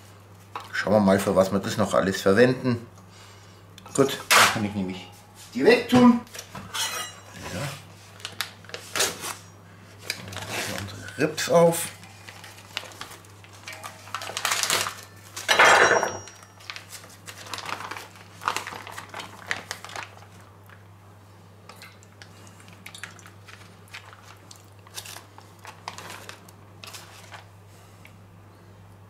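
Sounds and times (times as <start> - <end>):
plastic bag crinkling: 12.0 - 15.5, 16.3 - 20.8, 22.2 - 27.6
knife slitting plastic bag: 12.2 - 15.5, 16.6 - 20.3, 23.4 - 27.5.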